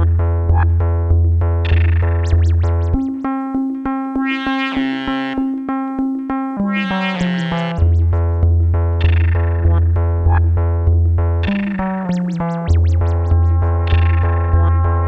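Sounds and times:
electronic keyboard-like notes: 0.0s - 15.0s
low bass drone: 6.6s - 15.0s.

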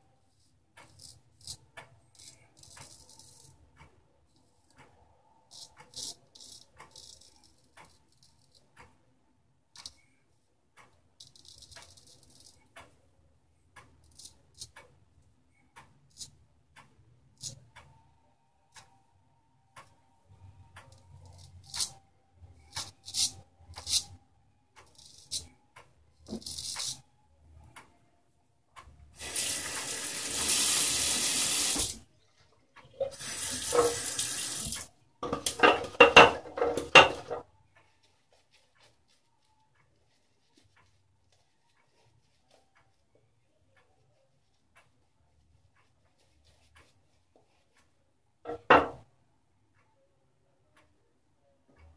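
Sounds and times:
clock ticking: 0.6s - 28.1s, 28.7s - 29.9s, 32.7s - 33.1s, 33.7s - 49.1s
faucet running into sink: 29.2s - 32.0s, 33.0s - 34.8s.

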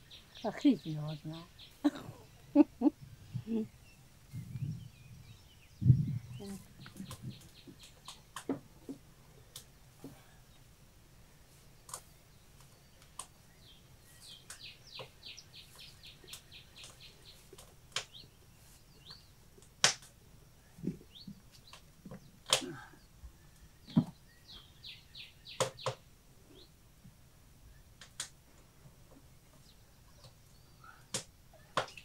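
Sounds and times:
small bird chirping: 0.0s - 8.4s, 11.5s - 19.4s, 23.0s - 26.8s.

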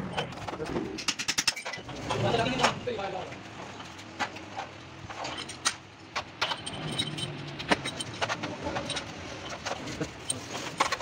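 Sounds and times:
metal bearing caps clinking: 3.8s - 11.0s.

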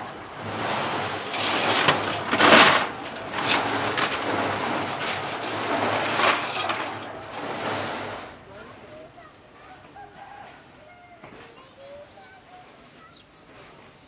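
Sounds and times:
steady hiss: 0.0s - 9.2s
metal chain clattering into tray: 1.2s - 7.8s.

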